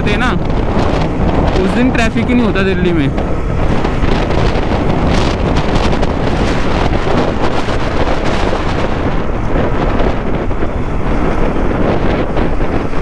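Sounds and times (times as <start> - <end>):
road noise: 0.0 - 13.0
wind rushing over microphone: 0.0 - 13.0
motorcycle engine: 3.1 - 13.0.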